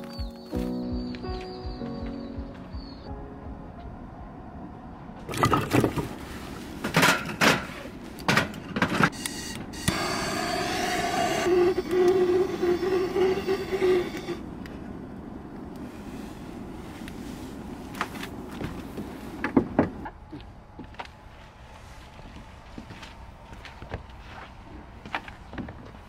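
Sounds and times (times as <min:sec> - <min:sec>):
small electric motor whirring: 0:09.2 - 0:14.4.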